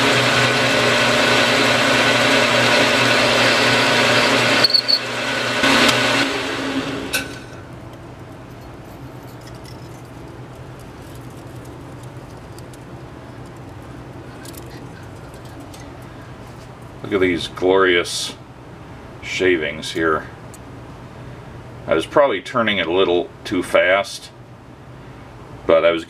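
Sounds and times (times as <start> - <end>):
metal lathe motor humming: 0.0 - 7.4.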